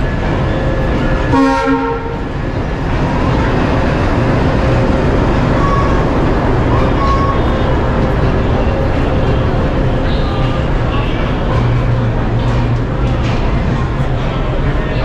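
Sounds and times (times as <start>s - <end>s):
locomotive engine and wheels: 0.0s - 15.0s
locomotive horn blast: 1.3s - 2.3s.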